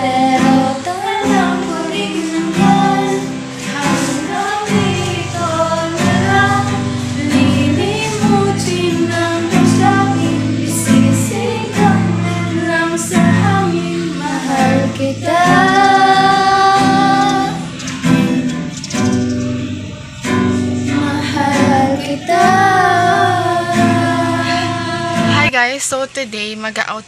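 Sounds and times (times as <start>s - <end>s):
woman singing: 0.0s - 17.8s, 20.9s - 25.7s
instrumental accompaniment: 0.0s - 25.6s.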